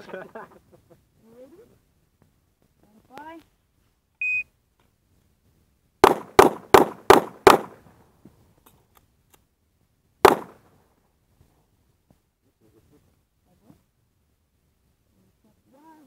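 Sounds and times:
shot timer beep: 4.2s - 4.4s
handgun shots: 6.0s - 7.8s, 10.2s - 10.6s.

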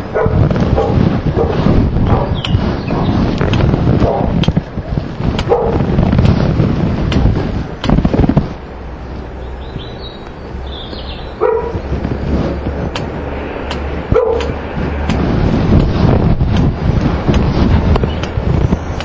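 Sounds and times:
wind rumbling on microphone: 0.0s - 19.0s
dog barking: 0.2s - 3.2s, 4.0s - 4.3s, 5.5s - 5.8s, 11.4s - 11.8s, 14.1s - 14.5s.

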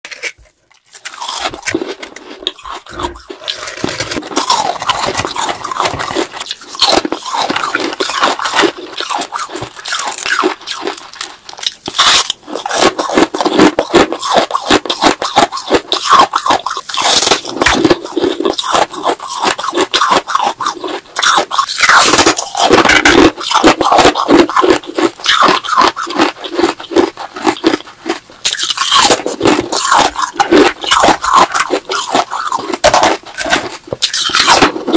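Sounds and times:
ice being scraped and broken: 0.1s - 27.8s, 28.5s - 34.9s
ice being chewed: 0.1s - 34.9s.

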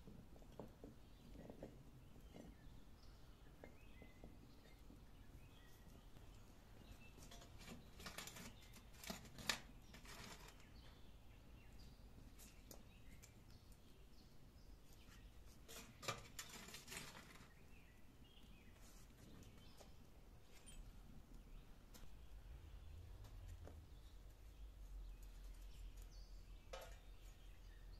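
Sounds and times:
metal scoop scraping embers: 15.6s - 17.6s.

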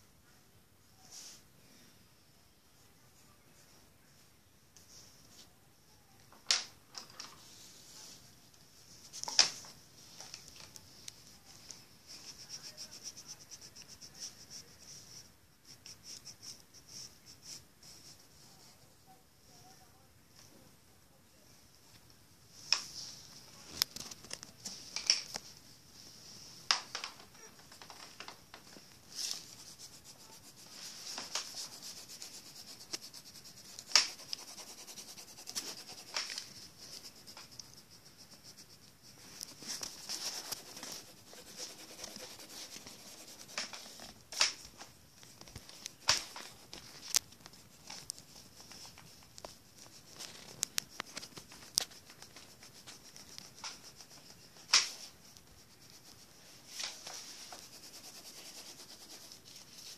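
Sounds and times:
pencil scratching on paper: 12.1s - 18.6s, 29.1s - 44.6s, 45.6s - 59.9s.

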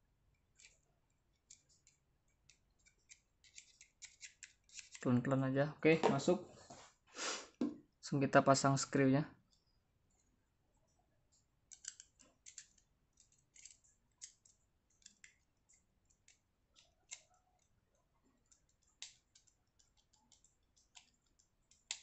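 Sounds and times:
small screwdriver clicking: 11.7s - 15.4s.

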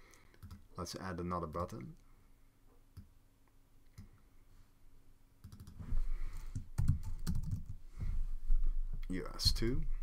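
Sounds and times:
computer keyboard typing: 0.4s - 0.6s, 5.4s - 5.8s, 6.4s - 7.8s.

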